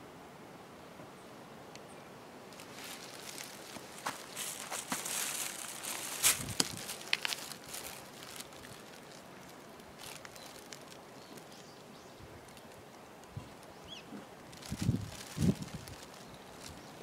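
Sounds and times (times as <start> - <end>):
faint outdoor background: 0.0 - 17.0
light scuffing: 2.6 - 7.8.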